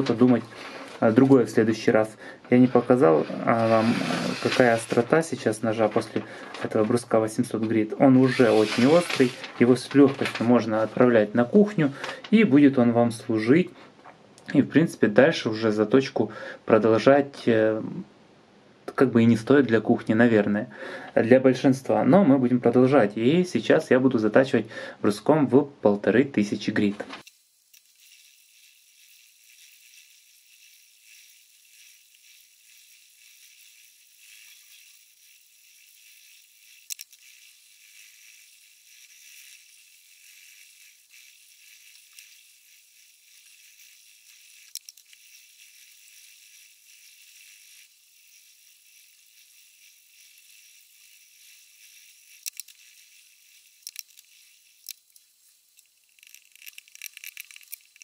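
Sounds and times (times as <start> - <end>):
sharp clicks and rattles: 3.6 - 12.5, 27.0 - 58.0.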